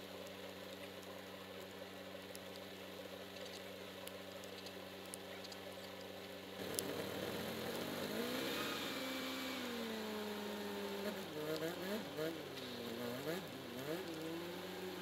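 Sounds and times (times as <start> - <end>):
tractor engine idling and revving: 6.0 - 15.0.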